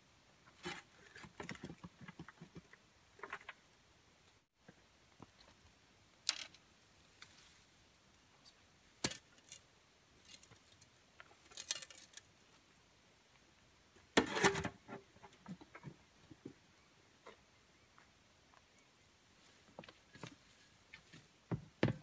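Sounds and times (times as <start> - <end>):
shovel scraping soil in wheelbarrow: 14.2 - 14.9.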